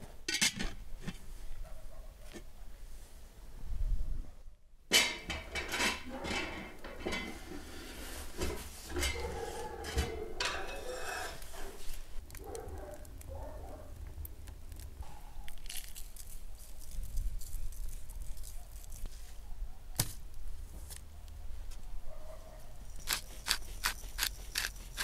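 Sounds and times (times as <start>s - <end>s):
metal pot and lid clinking: 4.9s - 7.4s, 8.9s - 11.5s
pot scraping: 5.0s - 12.6s, 23.0s - 25.0s.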